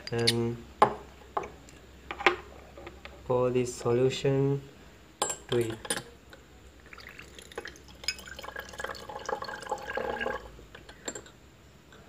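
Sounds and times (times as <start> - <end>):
liquid pouring into glass flask: 6.8 - 10.6.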